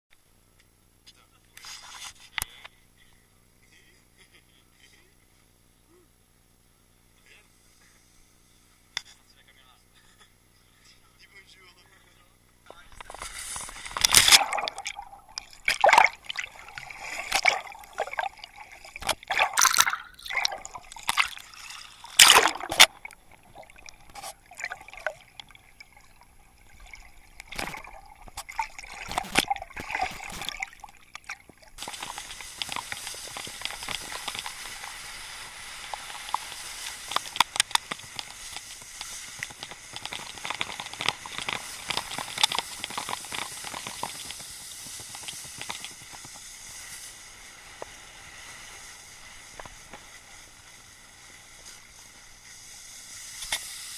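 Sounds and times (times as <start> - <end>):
water splashing and sloshing: 12.7 - 53.6
water bubbling: 12.8 - 47.4
wakeboard rushing across water: 13.0 - 25.9, 31.7 - 53.9.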